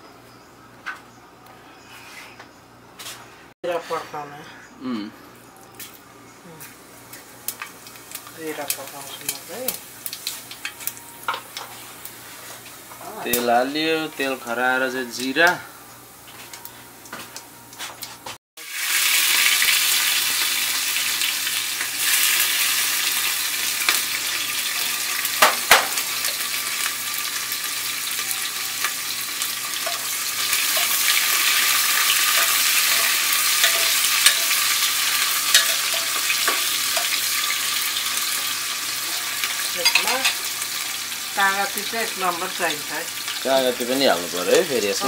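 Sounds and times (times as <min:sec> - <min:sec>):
onions sizzling in oil: 0:06.6 - 0:17.9, 0:18.6 - 0:45.0
spoon clicking against pot: 0:35.5 - 0:37.1.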